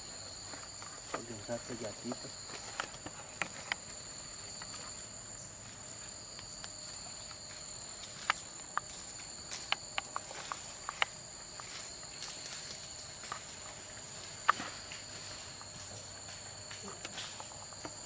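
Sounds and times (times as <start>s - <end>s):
insects droning: 0.0s - 18.0s
footsteps crackling on dry leaves: 5.6s - 18.0s.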